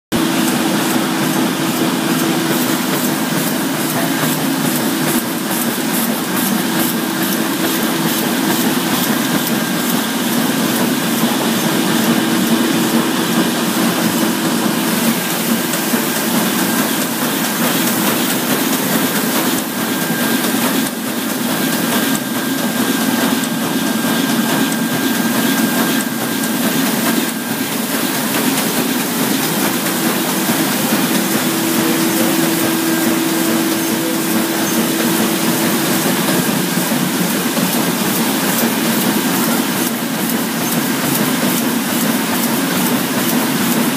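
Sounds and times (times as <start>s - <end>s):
machine hum: 0.1s - 43.9s
printing press mechanical clatter: 0.1s - 43.9s.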